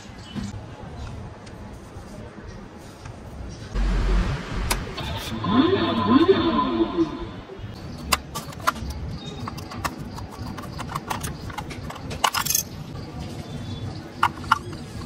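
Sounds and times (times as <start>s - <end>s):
wavering electronic tune: 3.8s - 7.7s.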